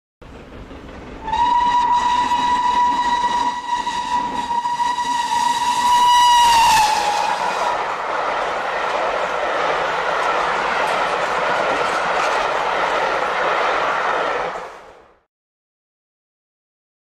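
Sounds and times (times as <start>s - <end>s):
rushing steam hiss: 0.3s - 14.9s
steam locomotive whistle: 1.2s - 7.9s.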